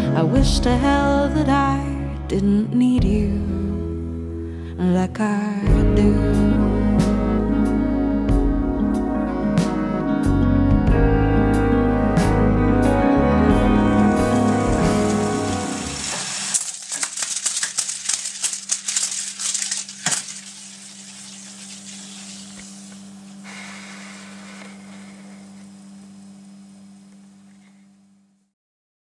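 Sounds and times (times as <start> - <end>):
low tone with hiss: 20.0 - 28.5.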